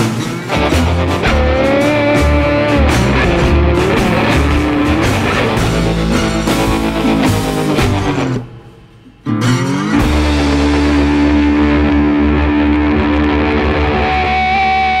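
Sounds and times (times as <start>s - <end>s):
rock music with guitar: 0.0s - 15.0s.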